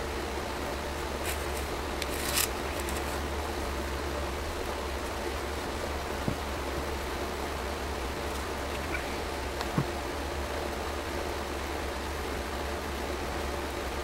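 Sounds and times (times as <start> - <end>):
low background hum: 0.0 - 14.0
metal part scraping on cardboard: 1.2 - 3.2.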